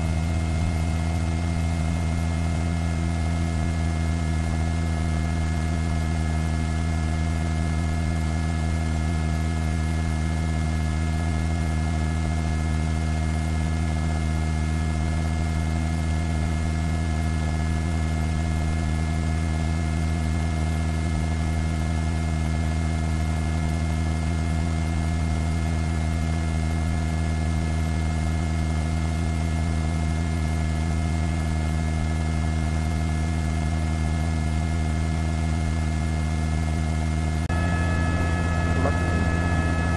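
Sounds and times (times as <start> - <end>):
helicopter cabin drone: 0.0 - 8.3, 37.0 - 39.9.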